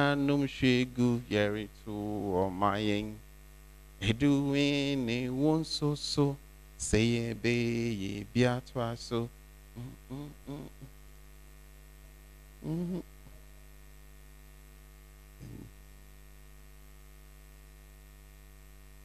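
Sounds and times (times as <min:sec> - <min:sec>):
electrical mains hum: 0:00.0 - 0:19.0
short vocal syllables: 0:04.0 - 0:11.0, 0:12.6 - 0:13.1, 0:15.4 - 0:15.7.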